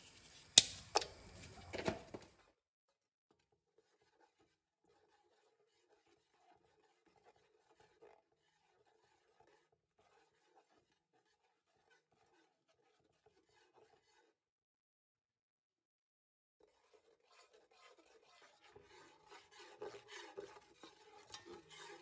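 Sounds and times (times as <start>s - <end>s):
metal spatula scraping pot: 3.7s - 14.4s, 16.6s - 22.0s.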